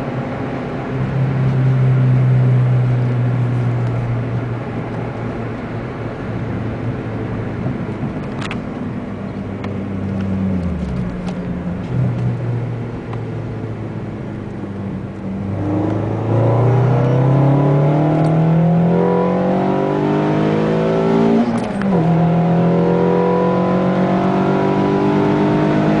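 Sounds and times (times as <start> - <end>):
car engine revving: 6.7 - 26.0.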